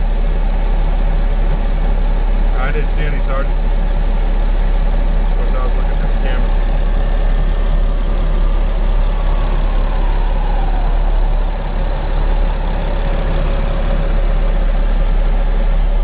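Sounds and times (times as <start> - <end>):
vehicle engine idling: 0.0 - 16.0
faint falling whine: 5.4 - 16.0.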